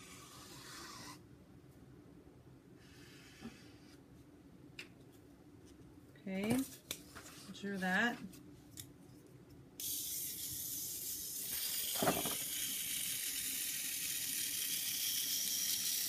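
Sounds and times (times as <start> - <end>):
toy motor whirring: 9.8 - 16.0.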